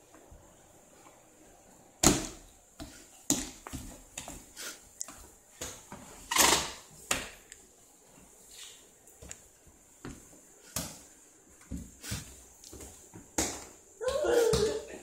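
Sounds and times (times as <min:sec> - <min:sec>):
hands slapping tile floor: 0:06.9 - 0:07.6.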